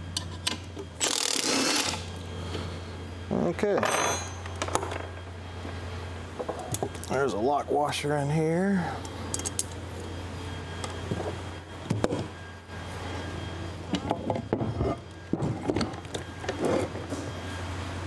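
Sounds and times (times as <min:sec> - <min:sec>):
steady low hum: 0:00.0 - 0:18.0
metal knocks and clinks: 0:03.8 - 0:05.1.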